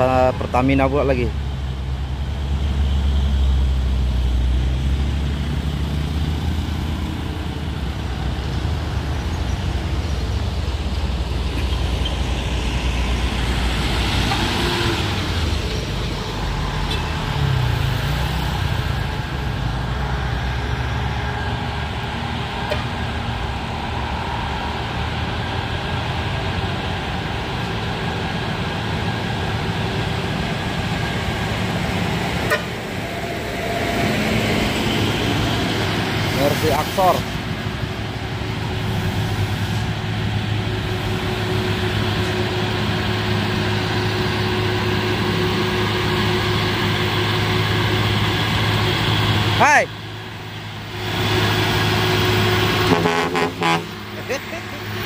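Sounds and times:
heavy truck engines rumbling: 0.0 - 55.0
traffic noise: 0.0 - 55.0
hiss: 36.3 - 37.4.

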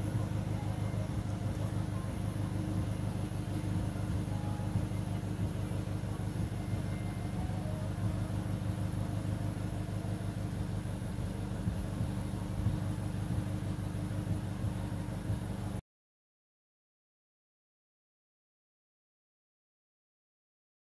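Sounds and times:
van engine idling: 0.0 - 15.8.

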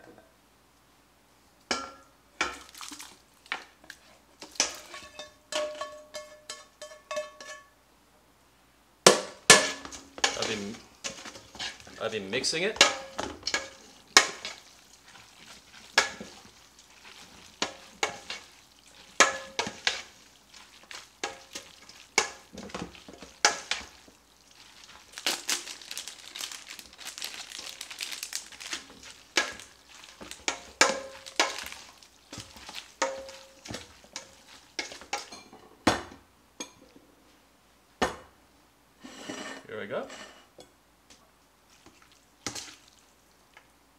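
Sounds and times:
wet squelching of pasta in sauce: 2.4 - 5.1, 10.2 - 35.4, 41.6 - 43.8
spoon scraping a metal pot: 4.6 - 7.7, 39.0 - 40.6
pot ringing: 5.0 - 7.7, 33.0 - 33.6
plastic packet crinkling: 24.4 - 30.5, 31.1 - 33.0.

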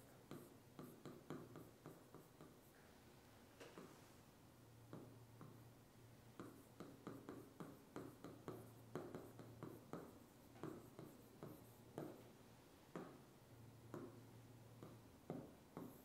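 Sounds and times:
stylus tapping on touchscreen: 0.3 - 2.6, 4.9 - 5.6, 6.4 - 12.2, 12.9 - 13.2, 13.9 - 14.2, 14.8 - 16.0.

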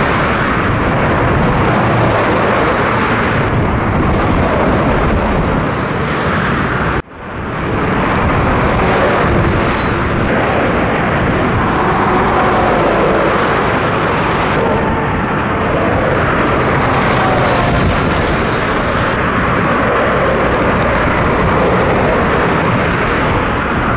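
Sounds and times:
diesel engine drone: 0.0 - 23.9
trucks and cars passing: 0.0 - 23.9
tyre roar: 8.6 - 23.9.

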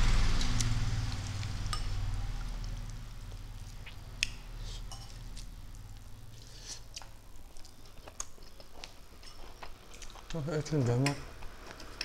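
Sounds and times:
low hum: 0.0 - 7.5.

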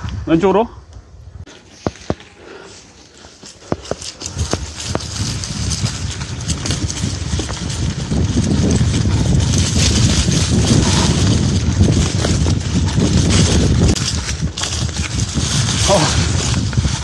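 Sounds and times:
tyres crunching through dry leaves: 1.7 - 16.6
mountain bike rattling: 3.7 - 17.0.

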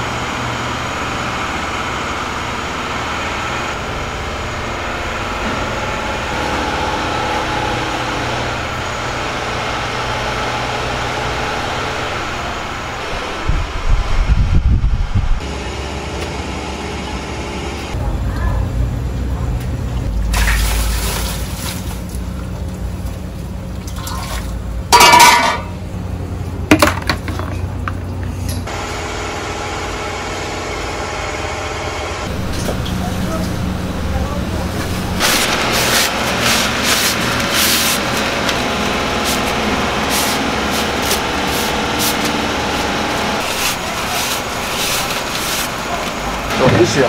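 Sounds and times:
water scooped and poured: 20.3 - 22.1
water boiling hard: 32.3 - 47.0
paper wrappers rustling: 34.7 - 46.5.

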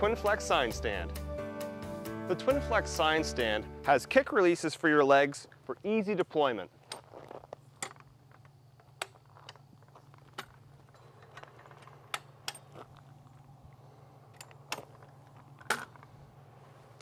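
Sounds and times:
steady low hum: 6.6 - 17.0.

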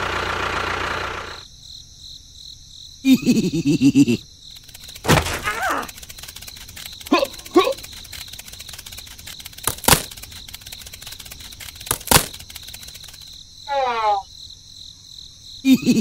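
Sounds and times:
insects chirping: 0.0 - 16.0
sharp knocks: 5.0 - 5.5, 11.9 - 12.4.

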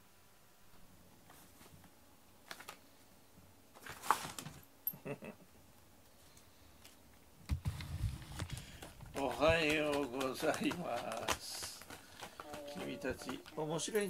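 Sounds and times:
claws scratching fabric: 8.1 - 14.0.

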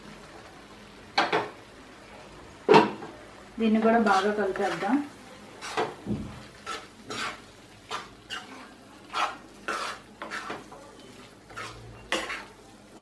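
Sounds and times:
steel spoon scraping a pan: 4.0 - 6.0, 6.6 - 12.6.

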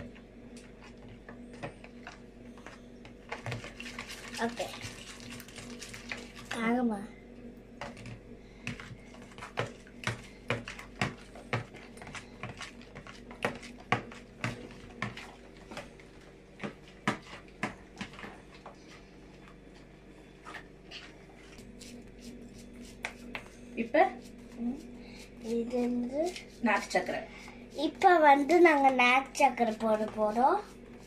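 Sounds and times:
whisk tapping plastic bowl: 8.7 - 15.9.

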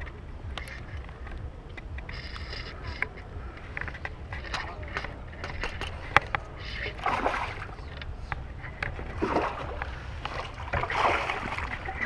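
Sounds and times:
fishing reel cranking: 0.0 - 7.0
water splashing: 0.0 - 12.0
wind rumble on microphone: 0.0 - 12.0.

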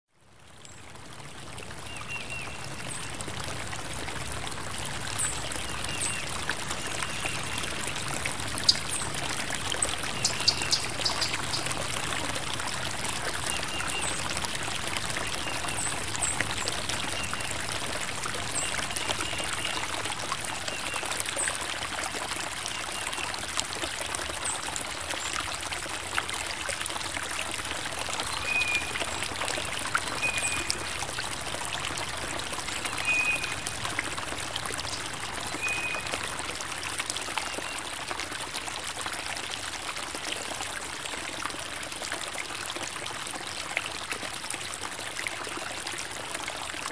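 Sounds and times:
creek water over rocks: 0.1 - 46.9.

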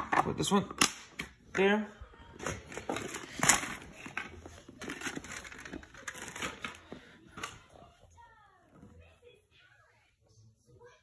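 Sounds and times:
packaging crinkling and rustling: 2.4 - 7.6.

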